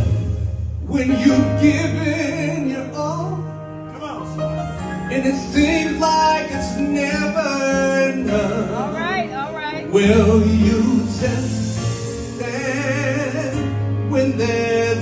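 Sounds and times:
musical accompaniment: 0.0 - 15.0
man singing into a microphone: 0.8 - 4.3, 5.1 - 9.2, 9.8 - 15.0.

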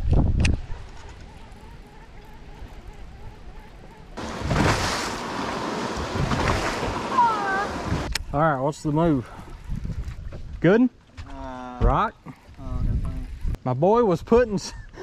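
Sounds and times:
wind and water rushing: 4.2 - 11.3.

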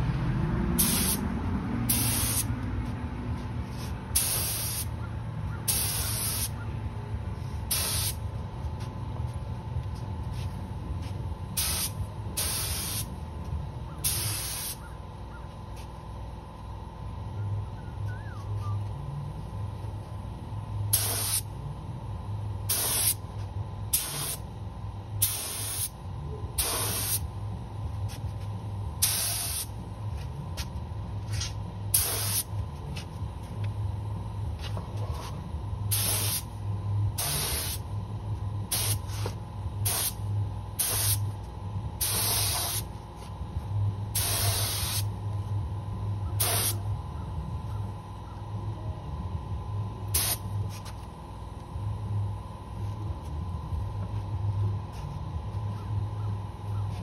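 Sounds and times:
low steady hum: 0.0 - 57.0
spray gun hissing bursts: 0.8 - 1.2, 1.9 - 2.5, 4.2 - 4.9, 5.7 - 6.5, 7.7 - 8.2, 11.6 - 13.1, 14.0 - 14.8, 20.9 - 21.4, 22.7 - 23.2, 23.9 - 24.4, 25.2 - 25.9, 26.6 - 27.2, 29.0 - 29.7, 31.9 - 32.5, 35.9 - 36.5, 37.2 - 37.8, 38.7 - 39.2, 39.8 - 40.2, 40.8 - 41.2, 42.0 - 42.9, 44.2 - 45.1, 46.4 - 46.8, 50.1 - 50.4.

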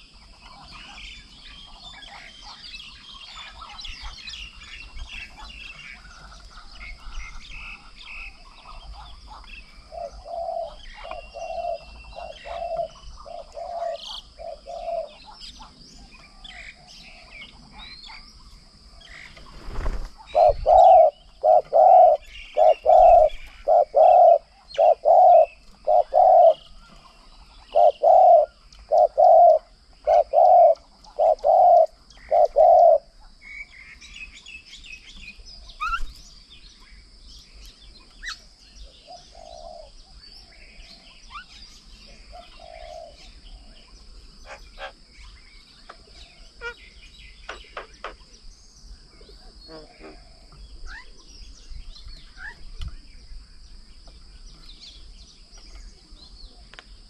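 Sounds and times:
small birds chirping: 0.0 - 57.0
bird hooting: 9.9 - 15.2, 20.3 - 26.8, 27.7 - 33.1.

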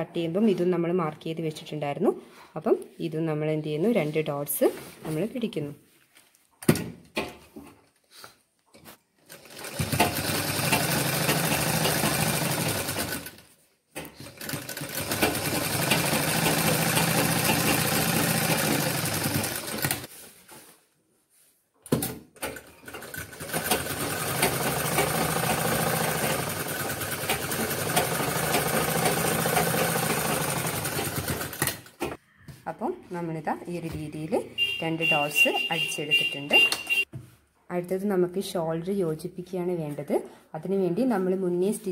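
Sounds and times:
sewing machine stitching: 9.3 - 13.4, 14.0 - 20.1, 22.4 - 32.0.

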